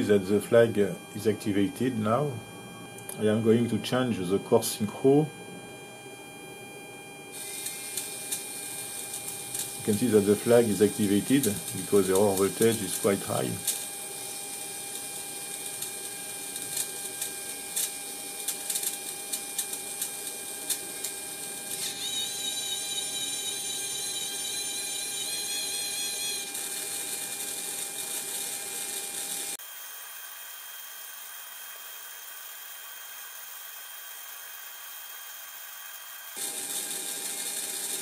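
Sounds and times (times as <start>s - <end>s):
servo motor whine: 0.0s - 29.6s, 36.1s - 38.0s
steady hum: 0.0s - 29.6s.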